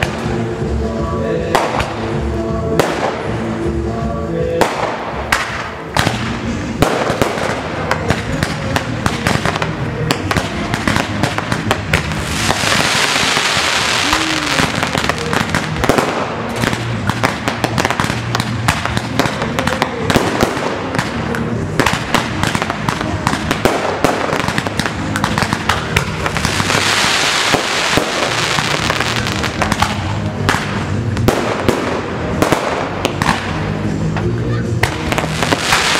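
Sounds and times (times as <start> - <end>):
firework bursts and crackling: 0.0 - 35.9
hissing crackle: 5.4 - 31.2.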